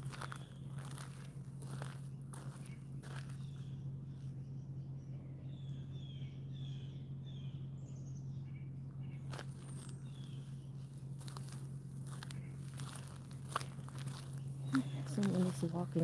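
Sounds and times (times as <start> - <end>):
small bird chirping: 0.0 - 1.1, 1.7 - 16.0
footsteps on leafy dirt trail: 0.0 - 3.9, 9.2 - 16.0
steady low hum: 0.0 - 16.0.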